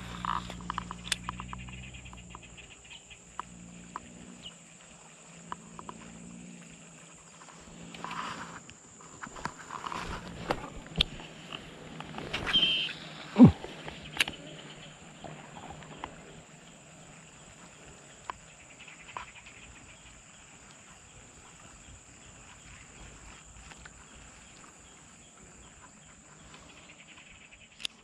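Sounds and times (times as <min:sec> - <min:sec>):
light ticks: 0:00.2 - 0:04.6, 0:05.4 - 0:06.1, 0:18.2 - 0:19.6
faint animal calls: 0:12.4 - 0:27.6.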